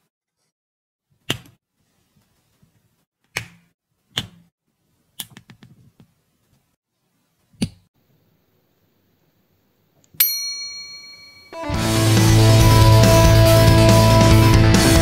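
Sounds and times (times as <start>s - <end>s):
bell-like chime: 10.2s - 11.8s.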